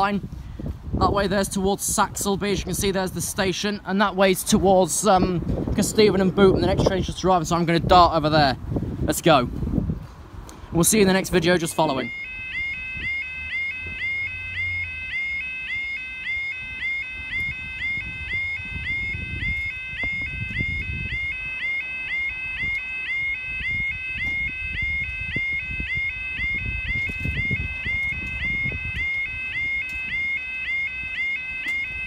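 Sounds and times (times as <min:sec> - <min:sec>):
level crossing two-tone alarm: 0:11.6 - 0:32.0.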